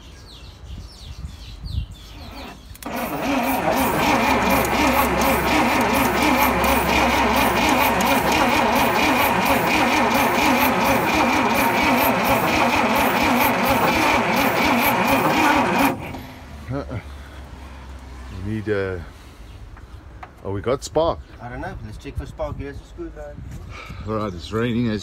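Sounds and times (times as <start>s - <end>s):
truck engine cranking on starter: 2.2s - 16.5s.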